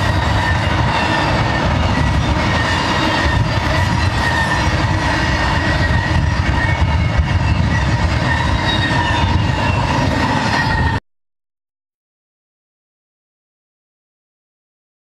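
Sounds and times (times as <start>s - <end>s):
train wheels on rails: 0.0s - 11.0s.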